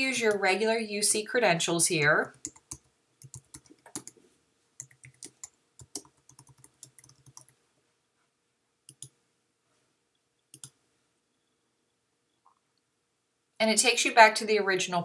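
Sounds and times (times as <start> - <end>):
faint keyboard typing: 2.3 - 7.6, 8.9 - 9.2, 10.4 - 10.8.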